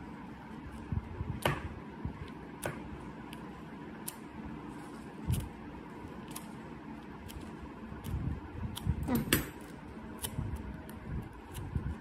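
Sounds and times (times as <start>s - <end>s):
scissors snipping tape: 4.0s - 4.2s.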